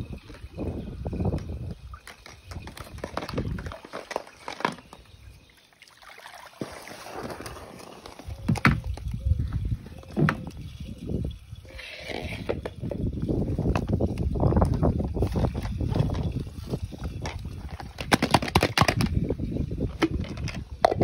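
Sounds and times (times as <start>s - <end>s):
water sloshing and splashing: 0.0s - 13.1s
plastic toys knocking together: 17.9s - 19.2s.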